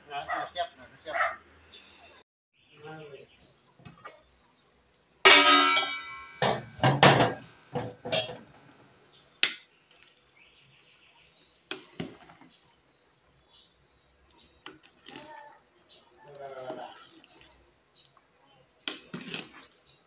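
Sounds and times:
metal knocks and clatters: 0:05.3 - 0:08.5
pot lid clanging: 0:05.3 - 0:08.5.

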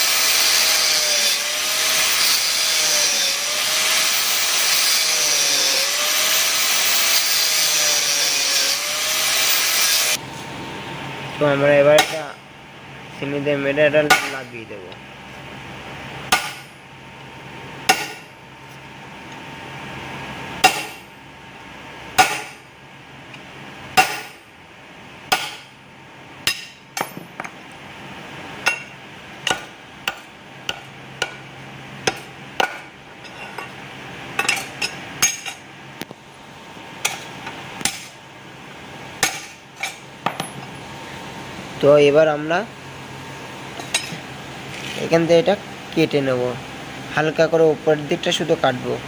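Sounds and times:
hammer striking steel chisel: 0:12.0 - 0:12.2, 0:14.1 - 0:14.4, 0:16.3 - 0:16.7, 0:17.9 - 0:18.2, 0:20.6 - 0:21.1, 0:22.2 - 0:22.6, 0:25.3 - 0:25.7, 0:26.5 - 0:27.5, 0:29.5 - 0:31.4, 0:32.0 - 0:32.9.

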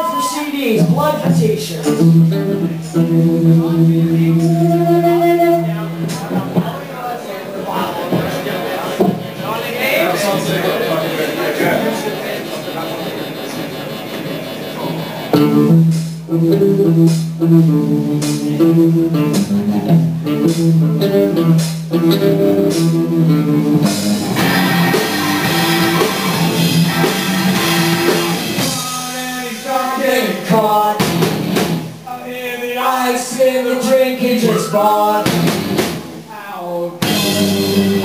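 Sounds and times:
rock band playing live: 0:00.0 - 0:07.0, 0:10.3 - 0:32.1, 0:34.4 - 0:36.2, 0:37.0 - 0:38.0
drums: 0:00.0 - 0:38.0
cymbals: 0:04.1 - 0:06.4, 0:23.8 - 0:29.7.

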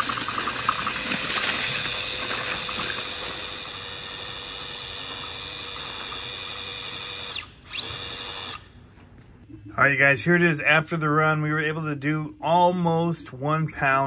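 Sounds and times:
electric motor whining: 0:00.0 - 0:08.7.

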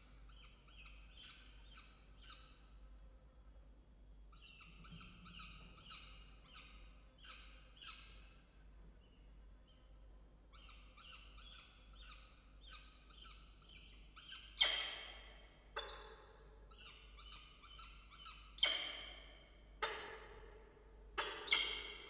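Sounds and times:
falcon chick begging chirps: 0:21.2 - 0:22.0.

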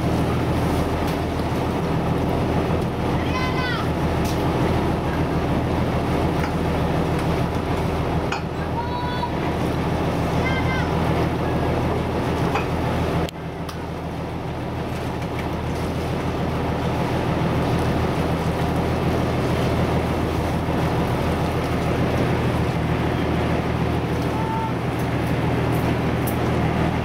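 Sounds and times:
boat engine drone: 0:00.0 - 0:27.0
water rushing: 0:00.0 - 0:27.0.

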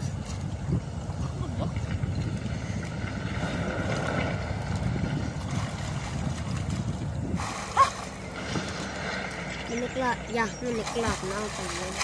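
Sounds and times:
wind buffeting microphone: 0:00.0 - 0:12.0
swimmers splashing: 0:05.4 - 0:12.0.

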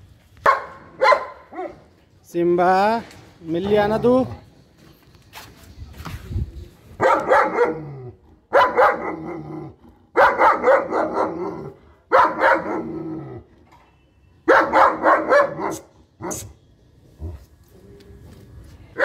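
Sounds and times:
dog barking: 0:00.4 - 0:01.8, 0:07.0 - 0:07.9, 0:08.5 - 0:09.3, 0:10.2 - 0:12.9, 0:14.5 - 0:16.4.

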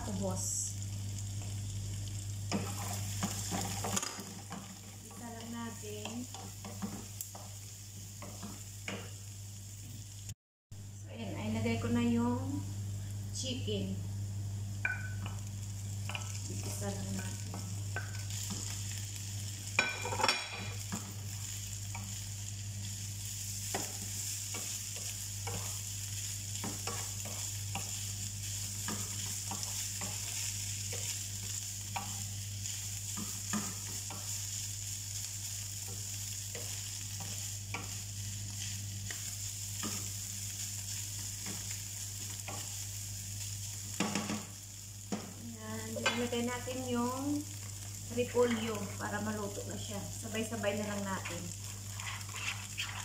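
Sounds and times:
chicken sizzling in a frying pan: 0:00.0 - 0:53.0
wooden spatula scraping a pan: 0:02.5 - 0:07.6, 0:51.0 - 0:53.0.

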